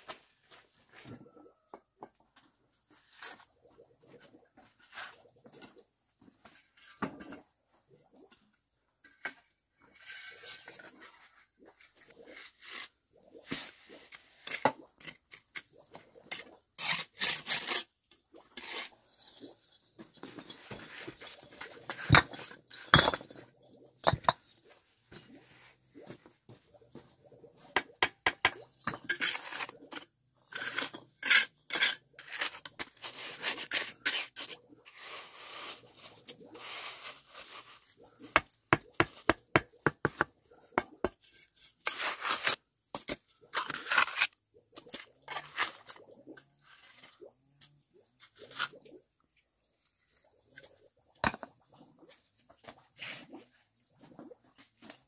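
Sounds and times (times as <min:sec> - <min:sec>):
trowel scraping mortar: 0:16.3 - 0:18.0, 0:18.6 - 0:19.4, 0:28.9 - 0:40.3, 0:41.0 - 0:46.0
bricks knocking and clinking: 0:21.9 - 0:23.4, 0:24.0 - 0:24.5, 0:27.8 - 0:29.2.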